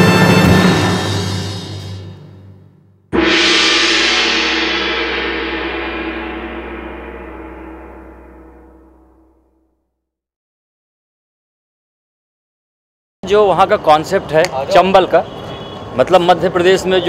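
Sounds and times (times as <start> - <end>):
music theme: 3.2 - 9.3
gong-like cinematic hit ringing: 3.2 - 9.6.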